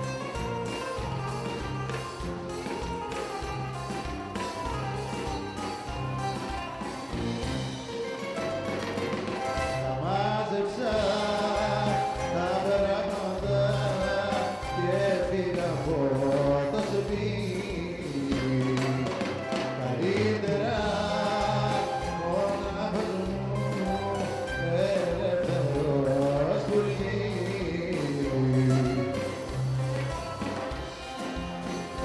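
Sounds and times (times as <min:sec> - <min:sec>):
bouzouki and band accompaniment: 0:00.0 - 0:32.0
man singing: 0:09.7 - 0:30.1.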